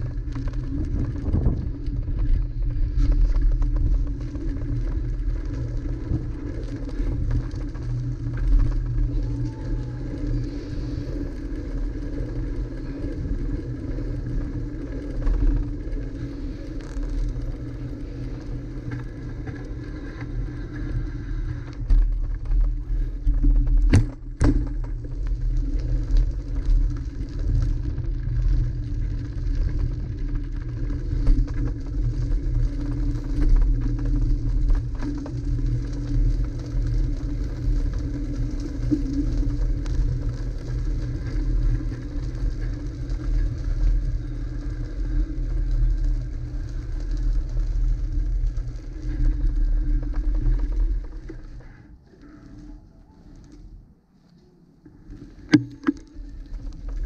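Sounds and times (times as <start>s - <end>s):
wind buffeting microphone: 0.0s - 16.7s
bicycle tyres on pavement: 0.0s - 57.0s.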